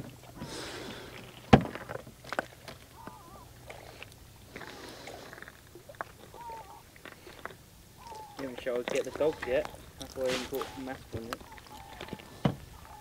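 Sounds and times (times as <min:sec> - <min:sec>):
short wavering bird call: 0:02.9 - 0:03.6, 0:06.2 - 0:06.9, 0:08.0 - 0:08.6, 0:10.6 - 0:13.0.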